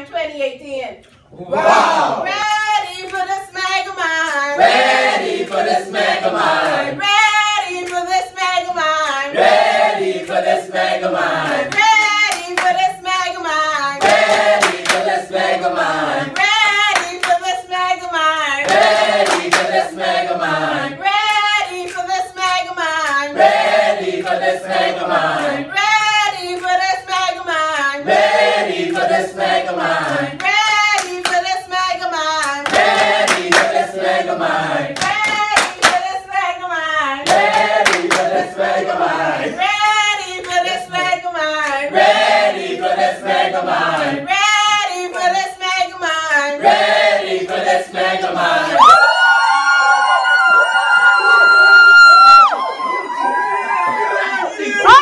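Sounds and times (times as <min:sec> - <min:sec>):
group singing unaccompanied: 0:01.4 - 0:48.9
hand claps: 0:07.7 - 0:08.2, 0:11.5 - 0:12.8, 0:14.0 - 0:15.2, 0:16.4 - 0:17.4, 0:18.6 - 0:19.8, 0:21.2 - 0:23.2, 0:26.4 - 0:26.9, 0:30.0 - 0:31.5, 0:32.4 - 0:33.8, 0:35.0 - 0:36.1, 0:37.2 - 0:38.4.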